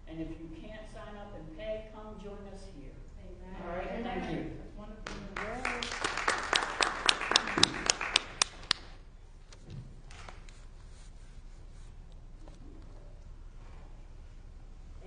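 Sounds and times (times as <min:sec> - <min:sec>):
congregation applauding: 0:05.0 - 0:09.0
sharp close claps: 0:05.0 - 0:09.0.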